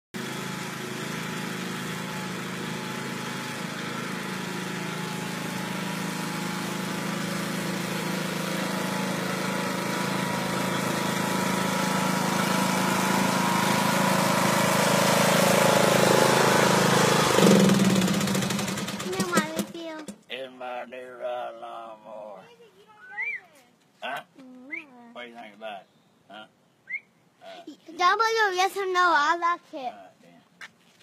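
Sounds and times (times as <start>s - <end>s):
riding lawn mower engine: 0.2s - 20.2s.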